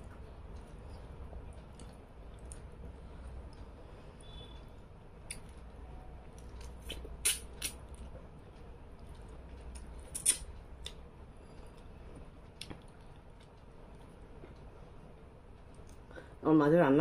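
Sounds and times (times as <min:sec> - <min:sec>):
sharp mouth clicks: 0:06.6 - 0:07.8.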